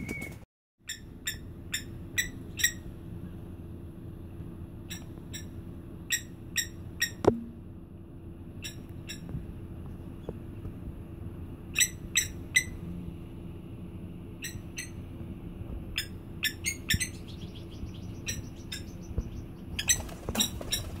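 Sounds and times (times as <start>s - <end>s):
plovers calling with clinking notes: 0.9s - 2.9s, 11.7s - 12.8s.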